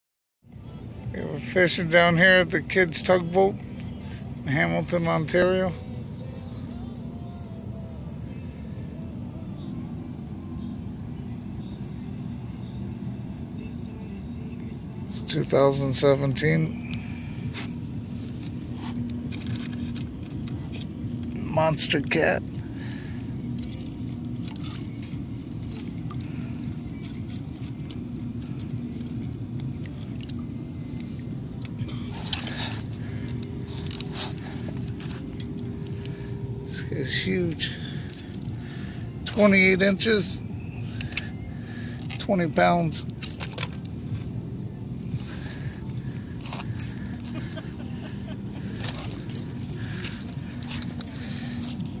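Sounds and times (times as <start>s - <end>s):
cricket trill: 0.4s - 52.0s
steady low rumble: 0.6s - 52.0s
fishing tackle scraping and clicking: 18.4s - 21.4s, 23.2s - 36.2s, 43.0s - 44.4s, 45.0s - 47.7s, 48.6s - 52.0s.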